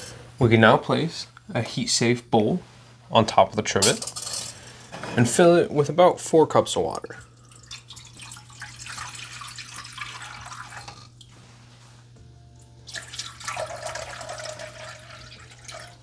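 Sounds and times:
water pouring into a pot: 0:07.4 - 0:11.3, 0:12.9 - 0:16.0.

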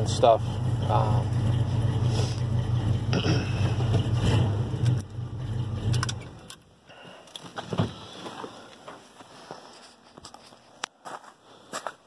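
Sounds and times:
truck engine idling: 0:00.0 - 0:06.8.

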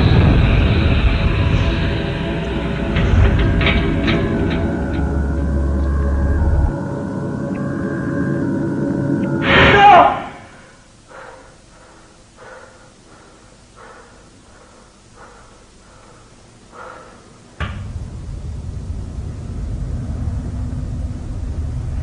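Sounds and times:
loud steady low rumble: 0:00.0 - 0:09.7, 0:17.4 - 0:22.0.

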